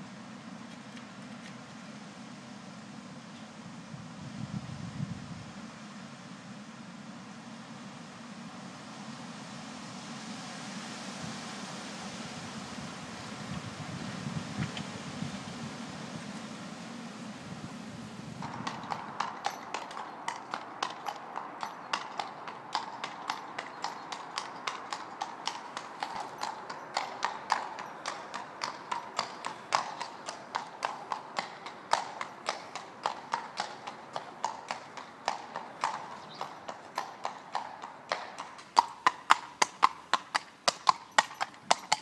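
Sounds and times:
horse hooves clip-clopping on tarmac: 0.3 - 1.9, 13.4 - 16.6, 18.4 - 42.0.

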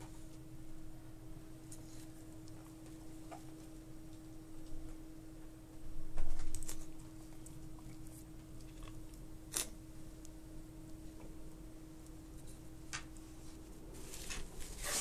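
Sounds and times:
steady hum: 0.0 - 15.0
rustling against phone microphone: 13.3 - 15.0.

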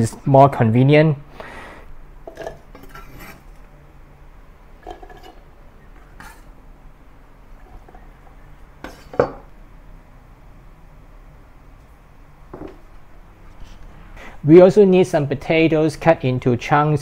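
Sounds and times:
knife scraping on wooden board: 2.3 - 3.6
knife set down on board: 12.5 - 12.8.

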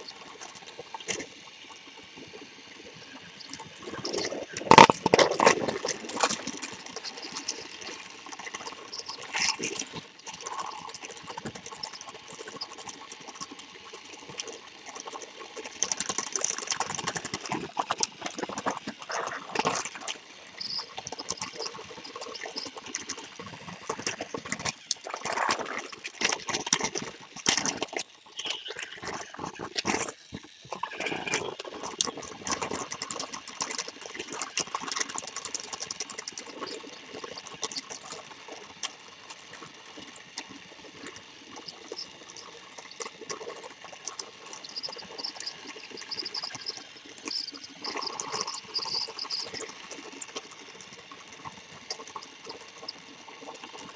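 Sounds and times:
toy train rattling and clicking: 3.5 - 39.7.

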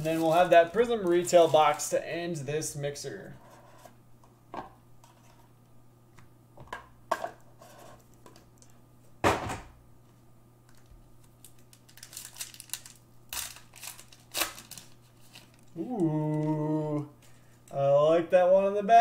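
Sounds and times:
foil wrapper crinkling and tearing: 0.0 - 1.9, 10.8 - 15.8.

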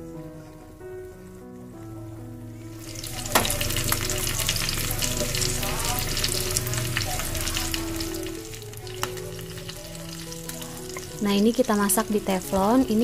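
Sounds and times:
chicken sizzling in hot oil: 2.6 - 13.0
sharp oil pop: 3.3 - 3.6.

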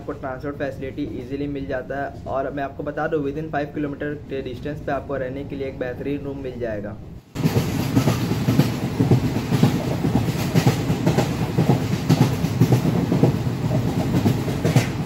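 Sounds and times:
train rumbling on rails: 7.2 - 15.0
train wheels clattering: 7.4 - 15.0.

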